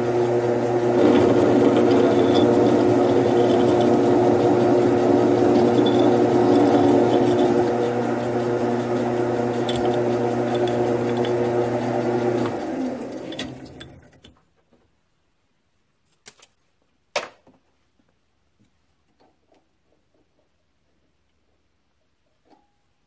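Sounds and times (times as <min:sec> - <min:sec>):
lathe humming and spinning down: 0:00.0 - 0:14.1.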